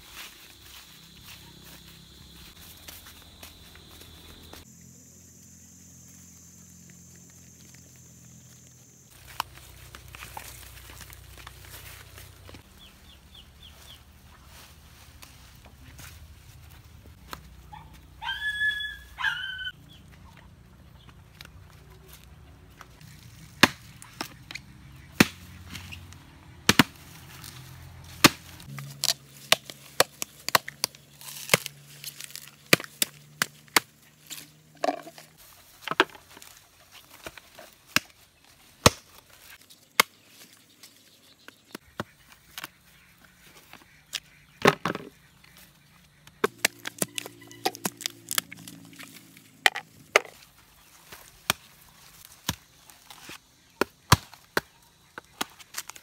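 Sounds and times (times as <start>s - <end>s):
machetes chopping coconuts: 23.4s - 35.2s, 37.2s - 38.2s, 38.8s - 39.2s, 46.3s - 48.9s, 51.1s - 56.0s.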